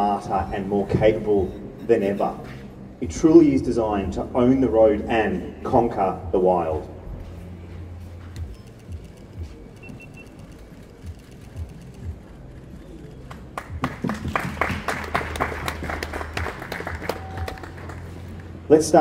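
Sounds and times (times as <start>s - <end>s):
low hall hum: 0.0s - 19.0s
crowd clapping: 13.0s - 18.6s.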